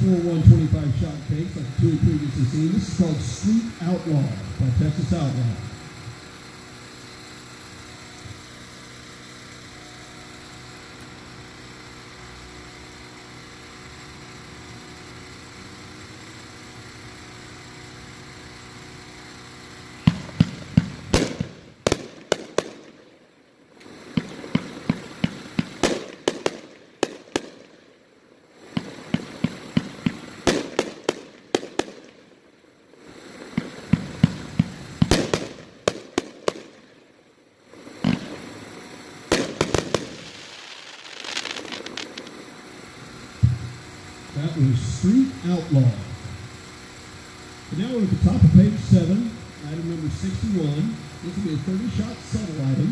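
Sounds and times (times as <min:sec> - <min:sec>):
fireworks firing and crackling: 0:00.0 - 0:52.9
steady low hum: 0:00.0 - 0:52.9.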